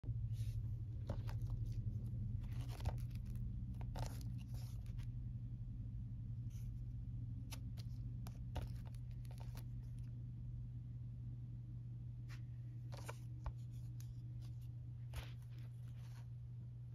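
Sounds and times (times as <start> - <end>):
steady low hum: 0.0 - 16.9
cardboard case rustling: 1.0 - 5.0.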